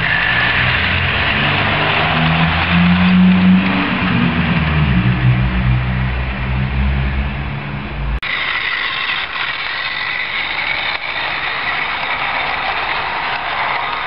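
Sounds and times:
electric motor hum and wheel rumble: 0.0 - 14.0
model locomotive whine: 8.2 - 14.0.

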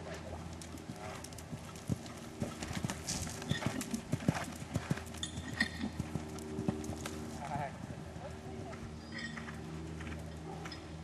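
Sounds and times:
horse hoofbeats on sand: 0.9 - 7.9.

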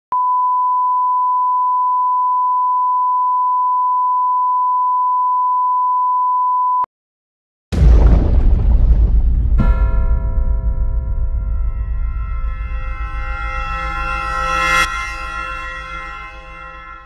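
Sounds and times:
loud low rumble: 7.8 - 17.0
steady test tone: 9.6 - 17.0.

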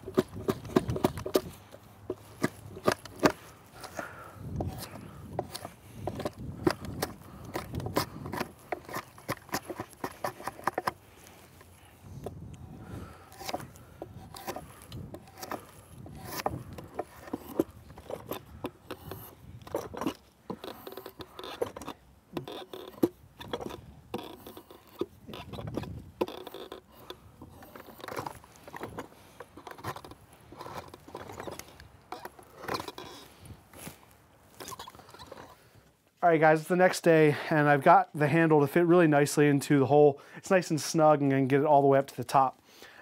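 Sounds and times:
blade scraping wood: 0.0 - 35.7.

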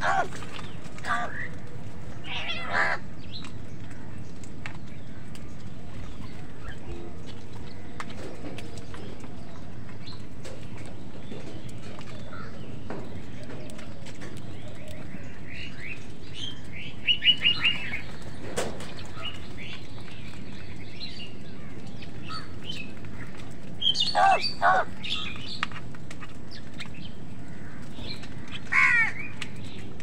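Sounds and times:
crows calling: 0.0 - 4.4, 12.2 - 18.2, 19.0 - 29.8.

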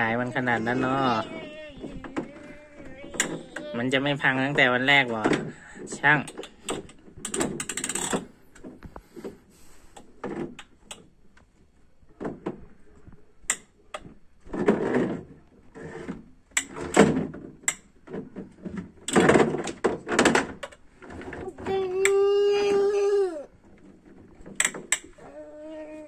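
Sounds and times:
plastic toy clacking and rattling: 0.0 - 5.5, 6.1 - 8.7, 15.9 - 22.2
plastic scraping: 0.0 - 9.4, 14.4 - 22.0.

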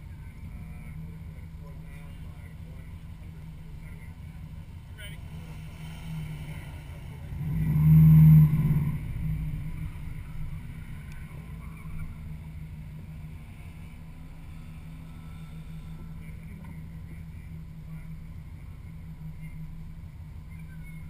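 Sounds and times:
car engine idling: 0.0 - 21.0
engine revving: 5.0 - 18.2.

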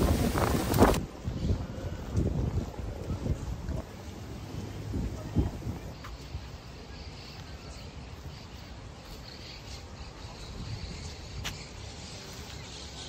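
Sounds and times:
faint birds chirping: 5.8 - 13.0.

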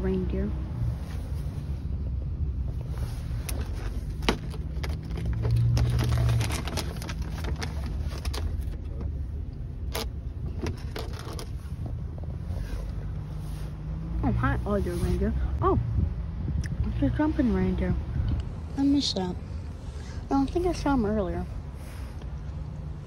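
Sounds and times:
vehicle rumble: 0.0 - 23.0.

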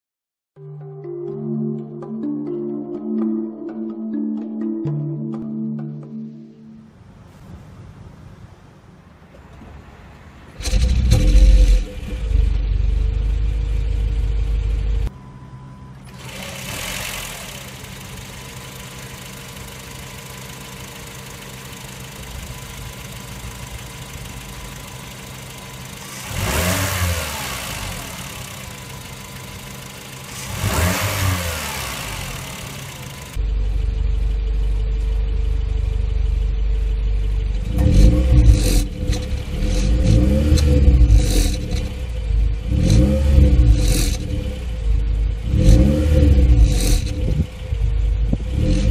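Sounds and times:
car engine idling: 10.3 - 48.9
car engine revving: 10.5 - 15.1, 16.1 - 48.9.

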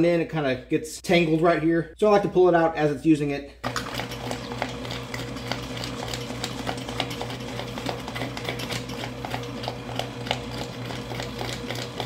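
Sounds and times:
drain snake motor humming: 3.8 - 12.0.

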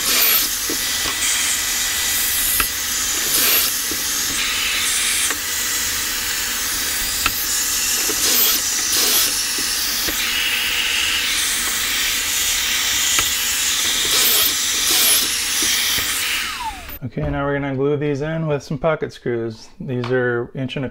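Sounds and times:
cordless drill boring: 0.0 - 17.0
vacuum hissing: 0.0 - 17.0.

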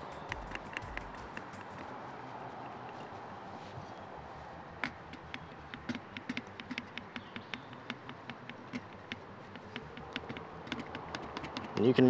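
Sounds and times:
pump plunger clicking: 0.0 - 1.9, 4.8 - 12.0.

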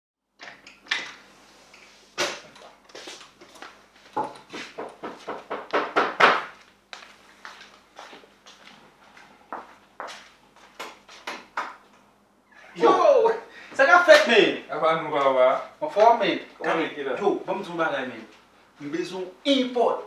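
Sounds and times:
knocks and thuds: 4.2 - 6.6
wooden door opening and closing: 12.5 - 13.0.

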